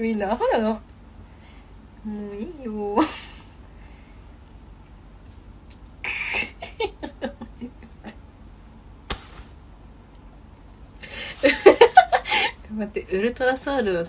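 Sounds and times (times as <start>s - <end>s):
woman laughing softly: 6.0s - 8.2s, 11.0s - 12.7s.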